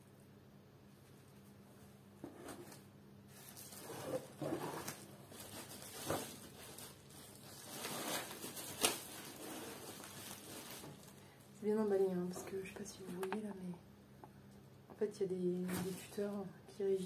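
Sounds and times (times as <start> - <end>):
bubble wrap and cardboard rustling: 0.9 - 11.3, 15.6 - 17.0.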